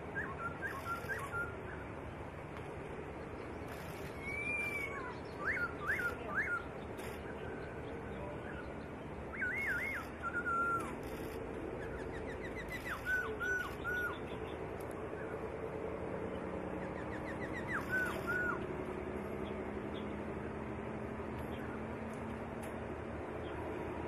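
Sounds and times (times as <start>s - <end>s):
faint steady hum: 0.0s - 24.0s
bird whistling phrases: 0.2s - 1.6s, 4.1s - 6.7s, 9.3s - 11.0s, 11.8s - 14.3s, 17.0s - 18.6s.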